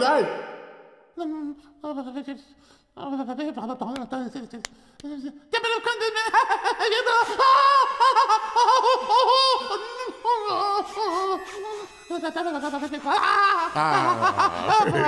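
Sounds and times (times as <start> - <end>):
cartoon voice babbling and giggling: 5.1 - 15.0.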